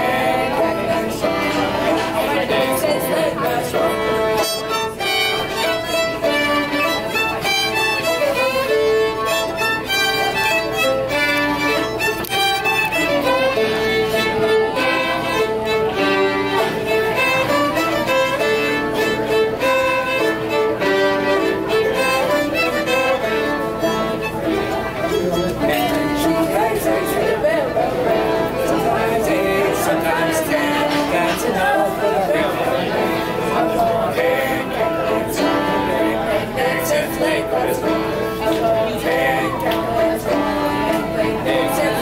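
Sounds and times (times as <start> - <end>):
fiddles playing lively tune: 0.0 - 42.0.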